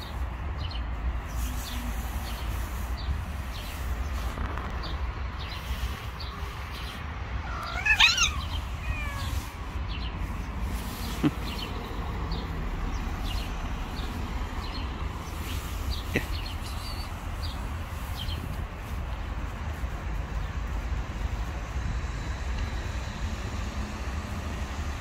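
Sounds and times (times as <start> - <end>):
cat meowing: 7.4 - 9.6.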